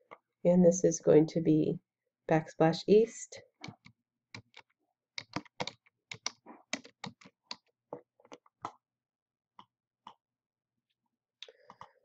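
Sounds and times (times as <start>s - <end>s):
keyboard keys tapping: 5.2s - 7.6s.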